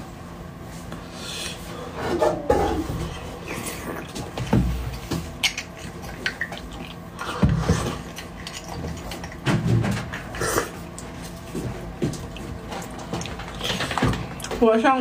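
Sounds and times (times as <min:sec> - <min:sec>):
mouth eating sounds: 0:05.0 - 0:09.5, 0:10.1 - 0:11.2.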